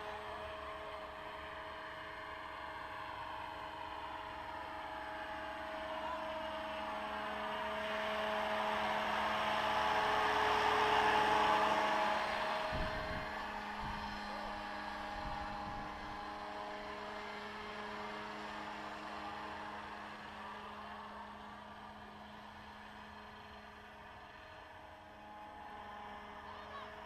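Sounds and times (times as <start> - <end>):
model helicopter rotor whine: 0.0 - 27.0.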